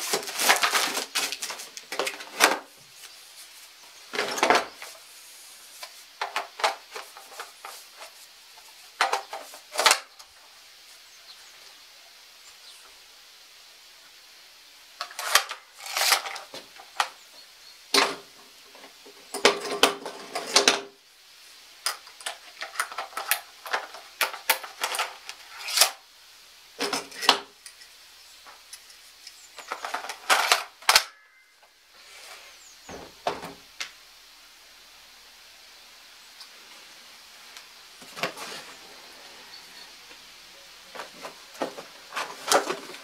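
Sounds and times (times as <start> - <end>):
nail gun clicks and rattles: 15.0 - 17.1.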